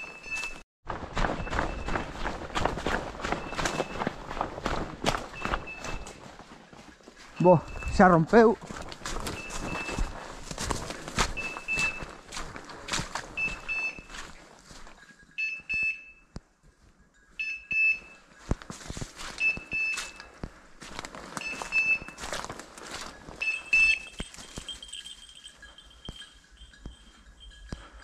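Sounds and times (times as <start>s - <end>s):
footsteps on dry leaves: 0.4s - 15.0s, 18.3s - 25.3s
high electronic beep: 3.4s - 4.1s, 5.3s - 6.2s, 7.4s - 8.3s, 9.3s - 10.1s, 11.3s - 12.1s, 13.4s - 14.1s, 21.4s - 22.2s, 23.4s - 24.2s.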